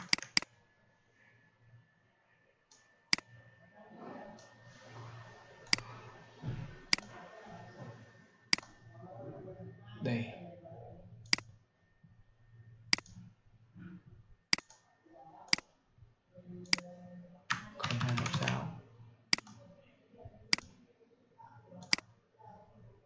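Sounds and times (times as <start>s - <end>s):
rapid keyboard typing: 0.0s - 0.5s, 17.5s - 18.8s
computer mouse clicks: 0.0s - 0.6s, 2.7s - 3.4s, 5.6s - 6.0s, 6.9s - 7.2s, 8.5s - 8.8s, 11.2s - 11.6s, 12.9s - 13.3s, 14.5s - 14.9s, 16.6s - 18.6s, 19.3s - 19.6s, 20.5s - 20.8s, 21.8s - 22.1s.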